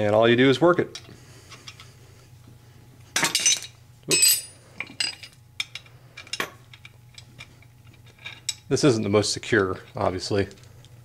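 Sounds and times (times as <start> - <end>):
wrenches clinking on metal: 3.2 - 6.9.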